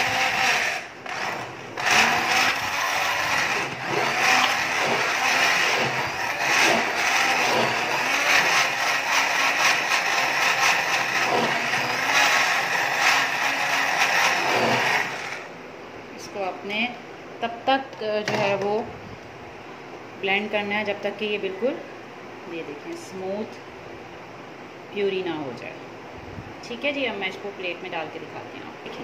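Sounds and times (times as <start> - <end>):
electric hand blender whining: 0.0 - 15.5.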